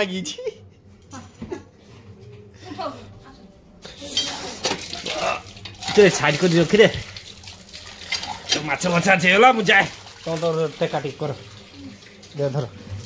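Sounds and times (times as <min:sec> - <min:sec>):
water running and splashing: 0:03.9 - 0:13.0.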